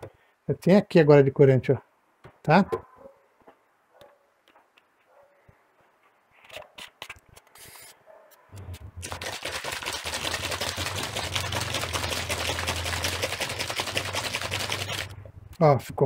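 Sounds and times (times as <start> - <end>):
paint bottle shaken rattling: 9.0 - 15.2.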